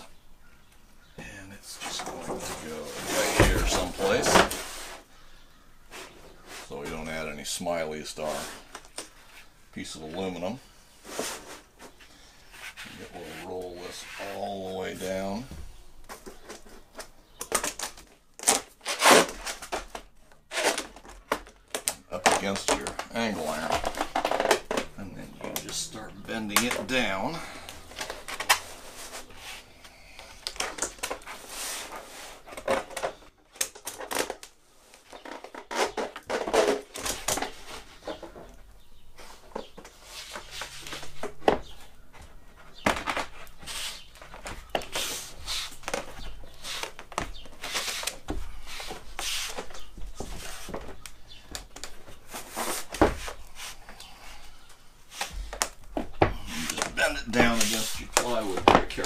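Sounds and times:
hands rubbing and scuffing wood: 1.8s - 5.1s, 11.0s - 17.1s, 39.2s - 54.0s, 55.1s - 59.0s.

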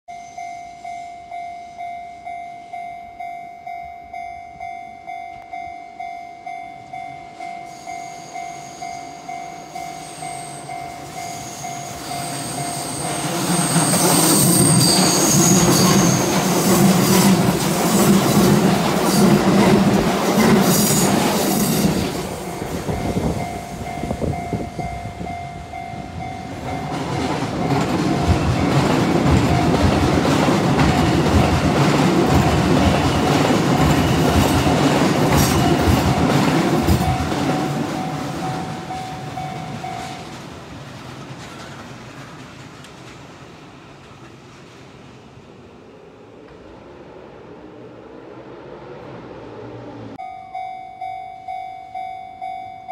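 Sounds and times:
level crossing warning bell: 0.1s - 40.7s, 50.2s - 52.9s
train wheels squealing: 7.0s - 19.7s, 20.4s - 29.8s, 32.3s - 40.3s
train wheels clattering over rail joints: 26.9s - 44.4s.

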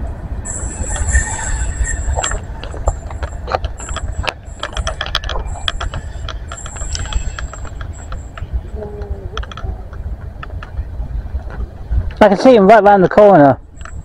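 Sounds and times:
wheels squealing on rails: 0.0s - 10.0s
freight train wagons rumbling: 0.0s - 14.0s.

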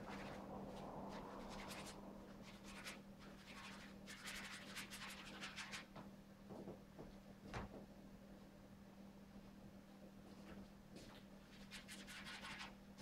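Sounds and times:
steady low hum: 0.0s - 11.9s
paintbrush scratching on canvas: 1.4s - 5.9s, 11.5s - 12.7s.

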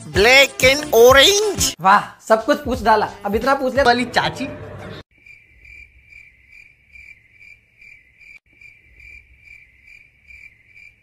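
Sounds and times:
cricket chirping: 5.1s - 11.0s.

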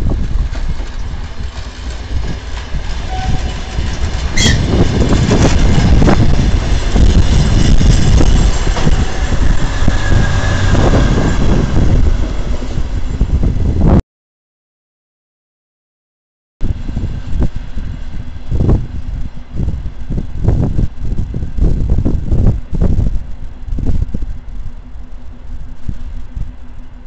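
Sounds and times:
train wheels clattering on track: 0.0s - 13.6s
diesel train rumble: 0.0s - 14.0s, 16.6s - 27.0s.

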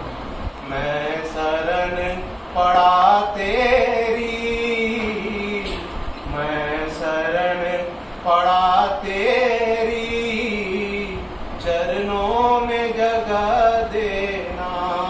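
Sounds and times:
man singing unaccompanied: 0.6s - 15.0s.

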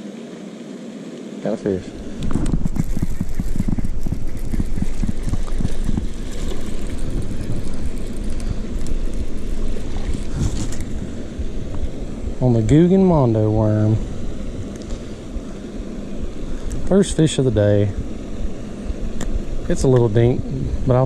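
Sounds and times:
wind buffeting microphone: 2.0s - 21.0s.

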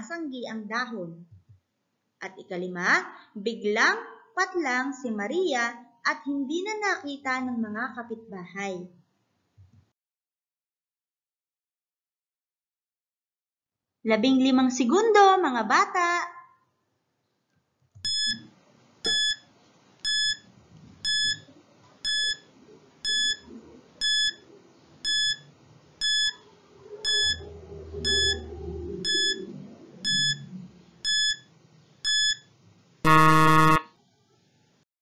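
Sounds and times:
buzzer: 18.0s - 18.5s, 19.1s - 23.4s, 24.0s - 24.4s, 25.0s - 26.4s, 27.0s - 27.4s, 28.0s - 28.4s, 29.0s - 29.4s, 30.0s - 30.4s, 31.0s - 33.9s
short electronic beeps: 18.1s - 18.5s, 19.1s - 24.4s, 25.0s - 26.4s, 27.0s - 27.4s, 28.0s - 32.5s.

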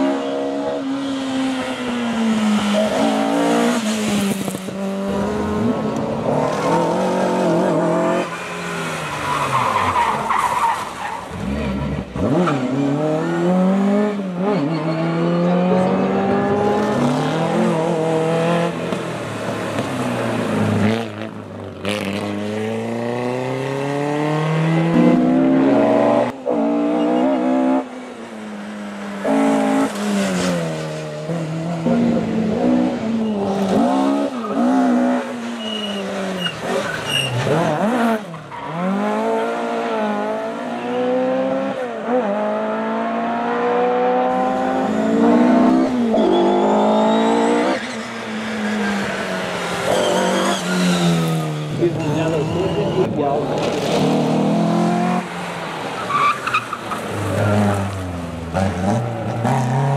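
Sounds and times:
rally cars revving past: 0.0s - 59.9s.

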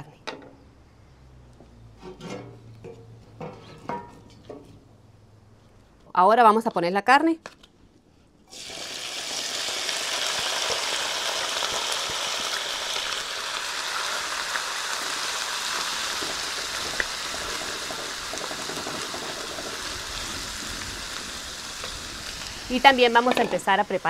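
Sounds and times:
pork sizzling in hot fat: 8.5s - 24.0s.

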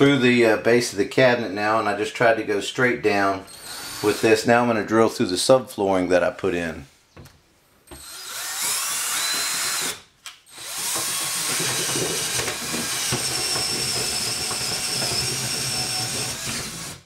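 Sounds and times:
cordless drill whining: 3.5s - 4.4s, 7.9s - 17.0s.

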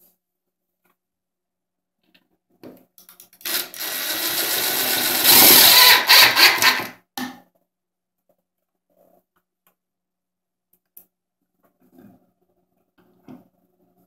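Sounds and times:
cordless drill driving a screw: 3.4s - 6.9s.

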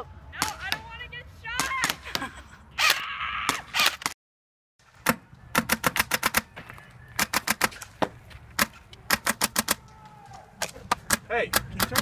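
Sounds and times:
airsoft rifle shots: 5.0s - 6.5s, 7.2s - 7.8s, 8.6s - 9.8s, 10.6s - 12.0s.

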